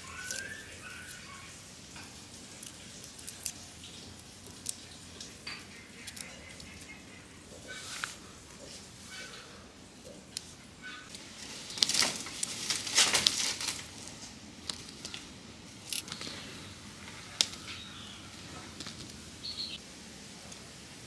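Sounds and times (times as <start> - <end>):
onion skin crackling and tearing: 0.0 - 1.4, 2.2 - 7.0, 11.1 - 16.4.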